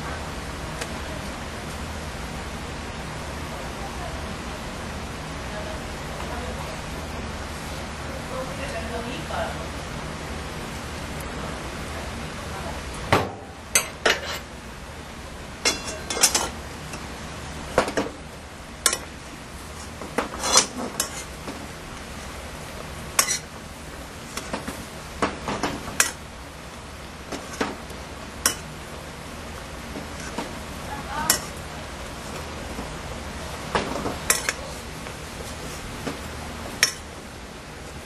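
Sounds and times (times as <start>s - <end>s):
metal spoon clinking on pot: 23.2s - 23.4s, 31.3s - 31.6s.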